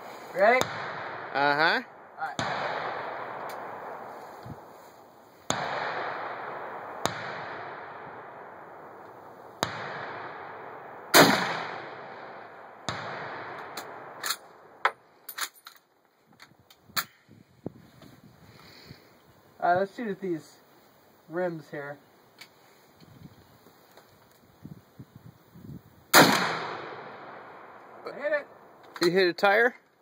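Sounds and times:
rifle shots with echo: 0:00.4 - 0:04.7, 0:05.5 - 0:14.8, 0:26.1 - 0:28.8.

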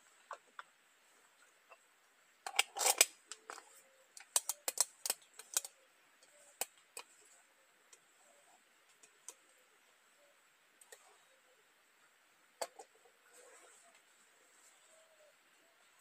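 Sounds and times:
sharp clicks: 0:04.2 - 0:05.8.

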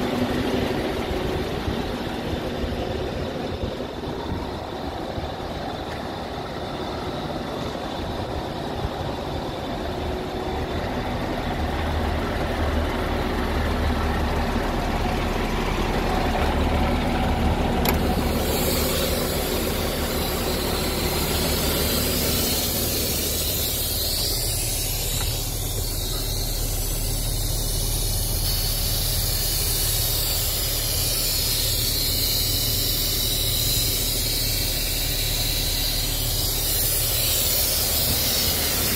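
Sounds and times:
diesel truck engine idling: 0:00.0 - 0:38.9
steady hiss: 0:17.8 - 0:38.9.

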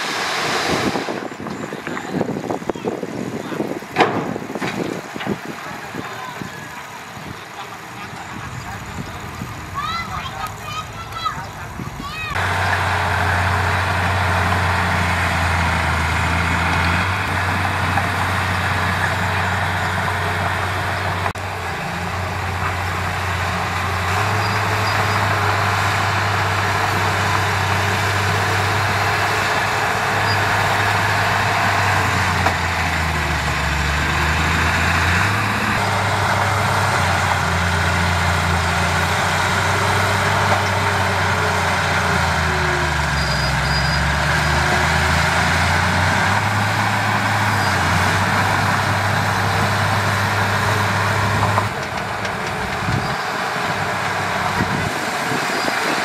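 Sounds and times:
bulldozer diesel engine: 0:00.0 - 0:56.0
steady mechanical noise: 0:00.0 - 0:56.0.

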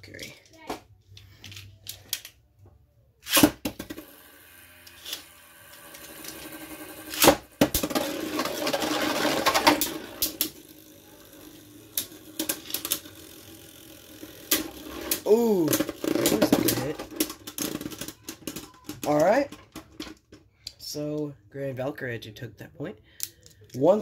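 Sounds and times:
spinning tops whirring: 0:03.2 - 0:18.8
spinning tops clacking: 0:03.3 - 0:19.2.

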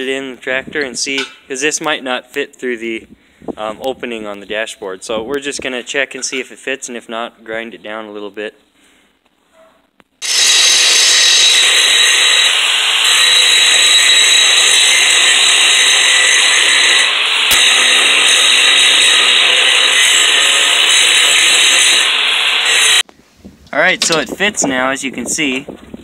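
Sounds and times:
power grinder grinding steel: 0:10.2 - 0:23.0.

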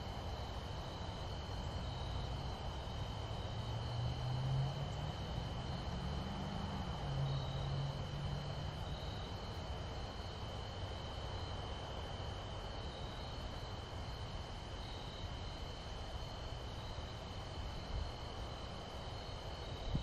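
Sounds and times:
low outdoor rumble: 0:00.0 - 0:11.7
distant vehicle engine drone: 0:00.0 - 0:12.4
crickets trilling: 0:00.0 - 0:20.0.

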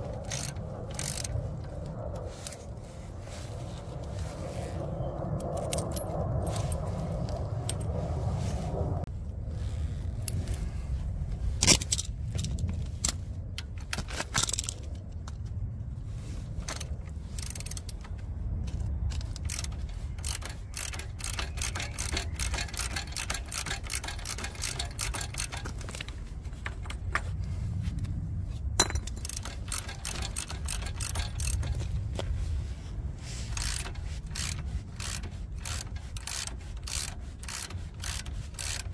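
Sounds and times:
metal tools clinking and scraping: 0:05.5 - 0:06.9, 0:11.6 - 0:15.4, 0:16.6 - 0:27.5, 0:28.8 - 0:32.2.

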